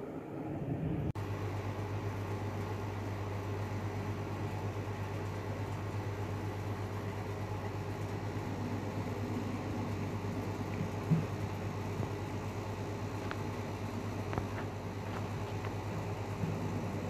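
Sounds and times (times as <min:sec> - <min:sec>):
jet airliner rumbling overhead: 0:00.0 - 0:01.7.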